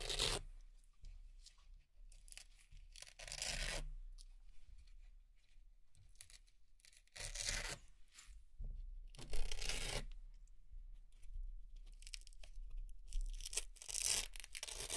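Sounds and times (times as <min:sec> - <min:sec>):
velcro tearing rips: 0:00.0 - 0:00.4, 0:03.0 - 0:03.9, 0:06.2 - 0:07.8, 0:09.2 - 0:10.0, 0:13.3 - 0:14.9.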